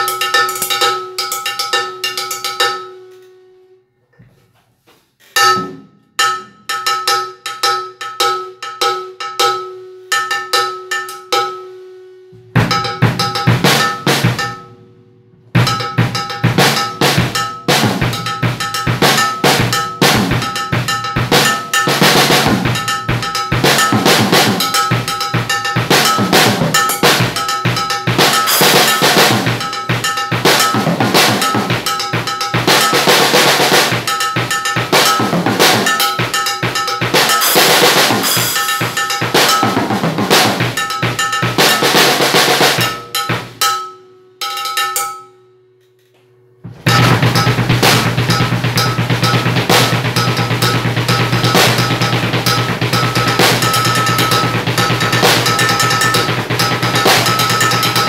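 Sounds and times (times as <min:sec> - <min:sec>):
drum kit playing fast groove: 0:00.0 - 0:02.8, 0:12.6 - 0:14.7, 0:15.5 - 0:43.8, 0:46.7 - 0:58.0
cowbell struck with a drumstick: 0:00.0 - 0:03.3, 0:05.4 - 0:11.8, 0:12.5 - 0:14.9, 0:15.6 - 0:45.6, 0:46.8 - 0:58.0.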